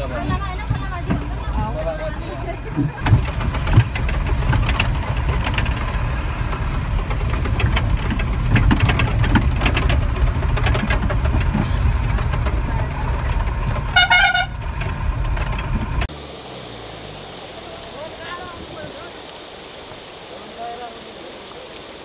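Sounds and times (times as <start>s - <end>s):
bus body rattling on gravel: 0.0s - 16.1s
bus engine rumbling: 0.0s - 22.0s.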